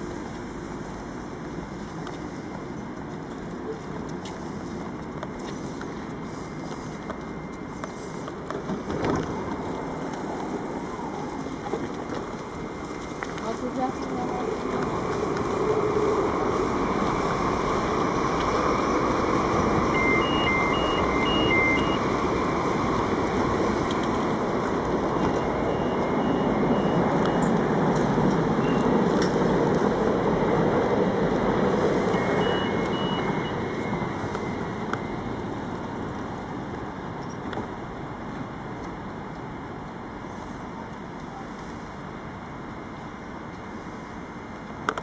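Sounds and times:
electric train humming: 0.0 - 45.0
two-pitch electronic beeps: 19.8 - 22.2, 25.2 - 27.6, 28.6 - 29.0, 32.1 - 35.4.

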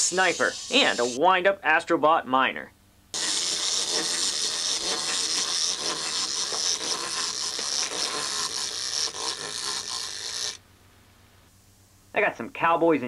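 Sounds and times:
clockwork toy motor whirring: 0.0 - 1.2, 3.1 - 10.6.

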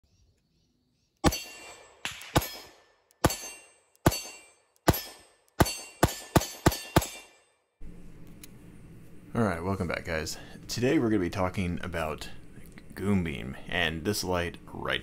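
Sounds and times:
pistol shots: 1.2 - 7.4.

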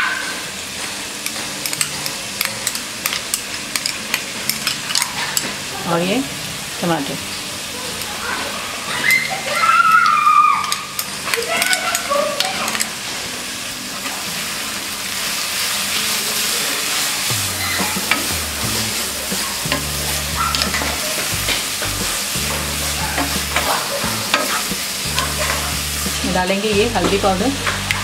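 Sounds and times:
vegetables sizzling in oil: 0.0 - 28.0
spatula scraping pan: 16.9 - 26.3.

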